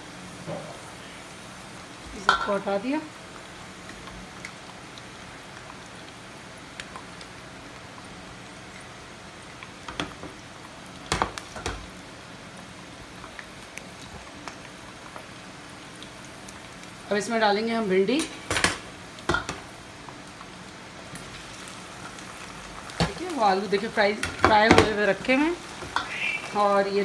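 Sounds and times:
oil sizzling in a pan: 0:00.0 - 0:27.0.

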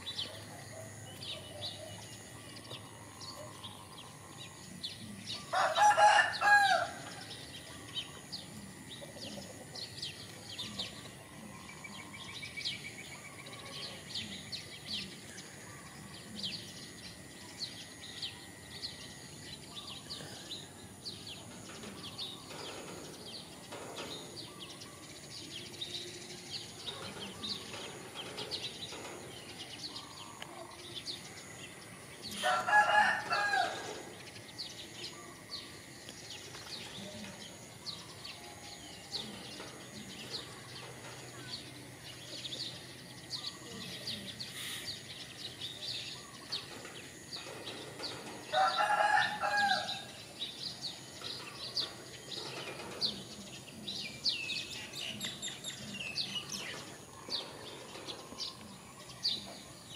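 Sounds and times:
small birds chirping: 0:00.0 - 0:59.9
rooster crowing: 0:05.4 - 0:07.3, 0:32.3 - 0:34.1, 0:48.4 - 0:50.2.

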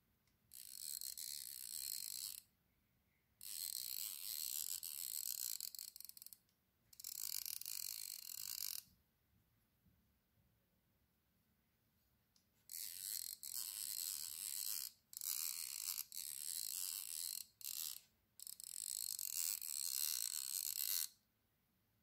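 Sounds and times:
fly reel clicker buzzing: 0:00.5 - 0:02.4, 0:03.4 - 0:06.4, 0:07.0 - 0:08.8, 0:12.7 - 0:21.1.

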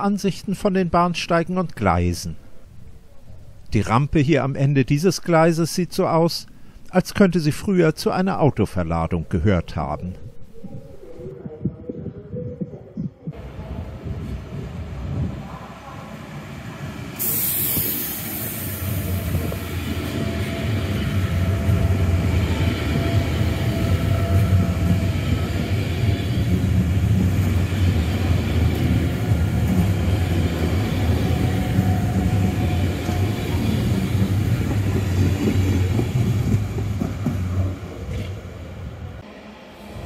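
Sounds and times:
train wheels rumbling on rail: 0:13.4 - 0:39.2.

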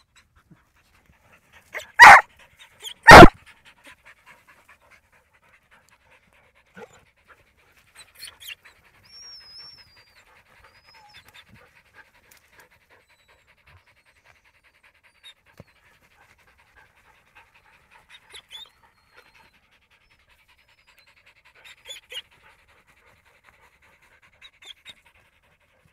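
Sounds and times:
dog panting: 0:00.0 - 0:25.9.

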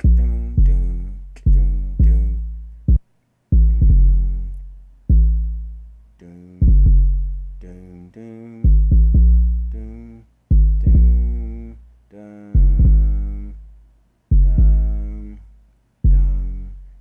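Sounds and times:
deep bass hits with click: 0:00.0 - 0:03.0, 0:03.6 - 0:05.7, 0:06.6 - 0:07.6, 0:08.7 - 0:09.8, 0:10.5 - 0:11.4, 0:12.6 - 0:13.2, 0:14.3 - 0:15.0, 0:16.1 - 0:16.6.

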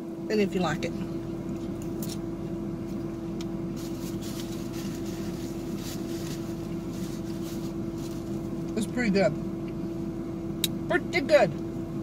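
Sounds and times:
salad being chewed: 0:02.8 - 0:08.8.

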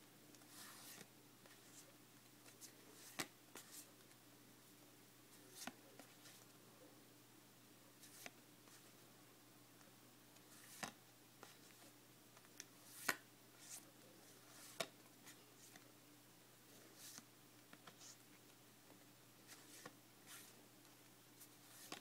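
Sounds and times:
low steady hum: 0:00.0 - 0:22.0
cards sliding off a stack: 0:10.5 - 0:11.0, 0:21.6 - 0:22.0.

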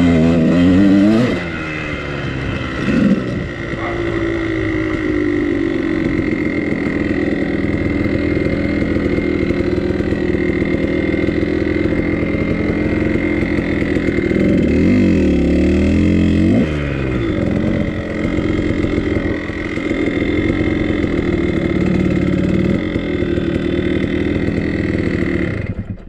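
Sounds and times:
two-stroke dirt bike engine: 0:00.0 - 0:26.0.

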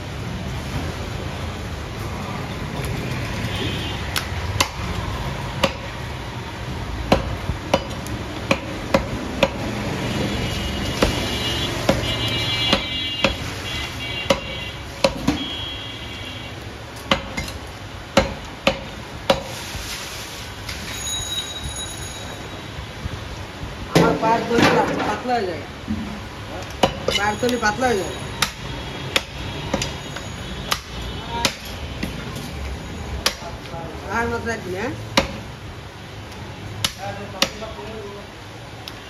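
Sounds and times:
cleaver chopping on wooden block: 0:04.2 - 0:04.9, 0:05.6 - 0:05.9, 0:07.1 - 0:09.7, 0:12.7 - 0:13.4, 0:14.3 - 0:15.4, 0:17.1 - 0:17.6, 0:18.2 - 0:19.5, 0:30.7 - 0:31.8, 0:35.2 - 0:35.4, 0:36.8 - 0:37.7.

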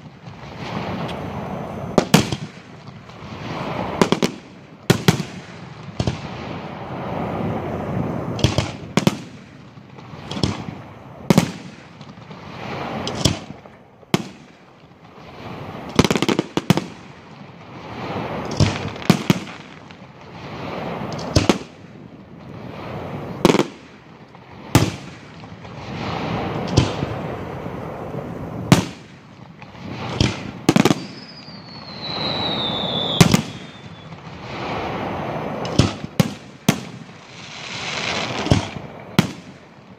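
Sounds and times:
firework shells bursting: 0:08.4 - 0:20.1, 0:20.8 - 0:21.9, 0:28.6 - 0:39.9
falling firework whistle: 0:29.7 - 0:39.6.

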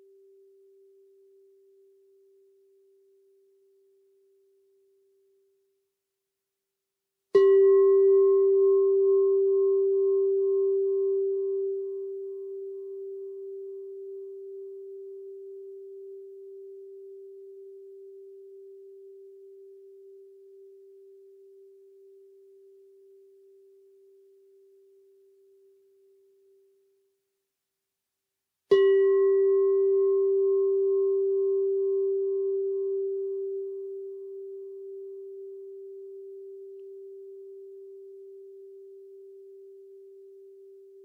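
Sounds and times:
singing bowl ringing: 0:07.4 - 0:26.7, 0:28.7 - 0:41.0.

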